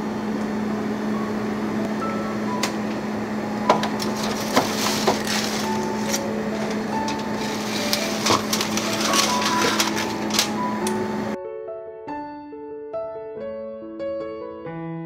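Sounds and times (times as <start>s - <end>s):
aluminium foil crinkling: 3.9s - 11.0s.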